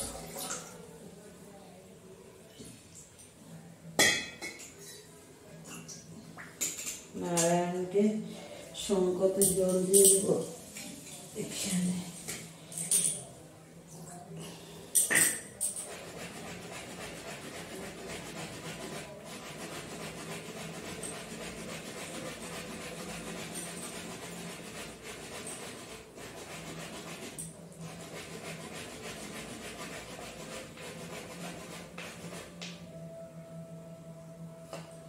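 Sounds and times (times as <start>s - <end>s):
hands rubbing and scraping: 15.7s - 32.8s
low steady hum: 27.2s - 35.0s.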